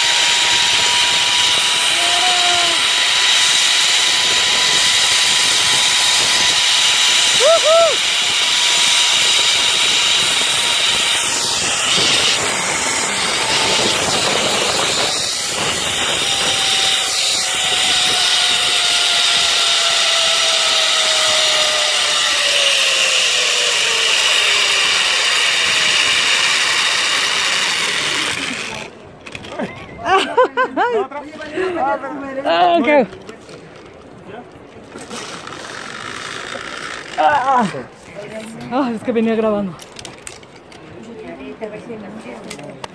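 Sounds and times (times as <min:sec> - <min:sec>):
zipline pulleys whirring on cable: 0:00.0 - 0:29.7, 0:34.9 - 0:37.8
wind rushing: 0:00.1 - 0:19.8.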